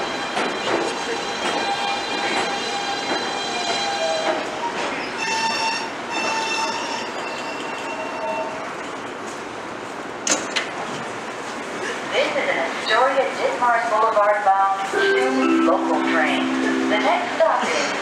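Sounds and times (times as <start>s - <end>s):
train wheels on rails: 0.0s - 12.1s.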